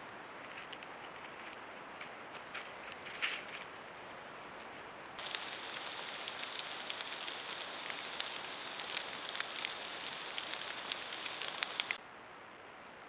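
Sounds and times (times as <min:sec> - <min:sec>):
recording hiss: 0:00.0 - 0:13.0
light crackles: 0:00.4 - 0:12.0
faint high whine: 0:05.2 - 0:13.0.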